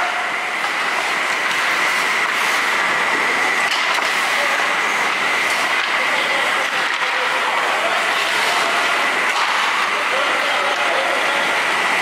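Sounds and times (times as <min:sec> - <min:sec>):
steady high hum: 0:00.0 - 0:12.0
skate blades scraping ice: 0:00.6 - 0:02.8.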